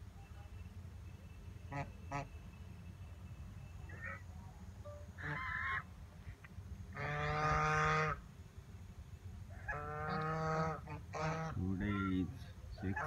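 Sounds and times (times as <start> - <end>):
geese honking: 1.7 - 2.4, 3.9 - 4.3, 5.1 - 5.9, 6.9 - 8.2, 9.6 - 13.0.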